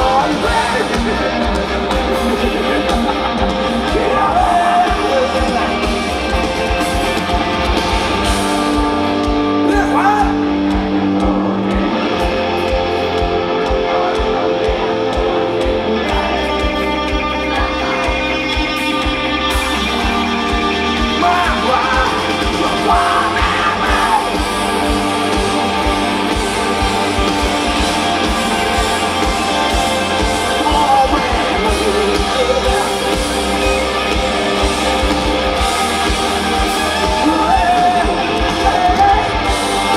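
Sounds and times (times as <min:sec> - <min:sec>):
person singing: 0:00.0 - 0:06.5, 0:21.2 - 0:25.8, 0:36.5 - 0:39.9
live rock band playing: 0:00.0 - 0:39.9.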